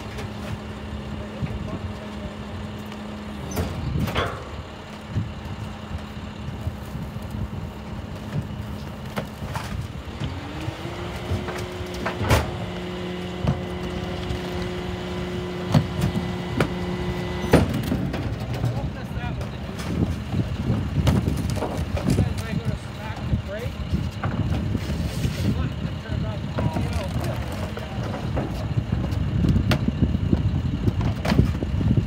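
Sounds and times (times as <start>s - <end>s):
garbage truck engine idling: 0.0s - 32.0s
knocks and bangs in hopper: 11.2s - 22.4s.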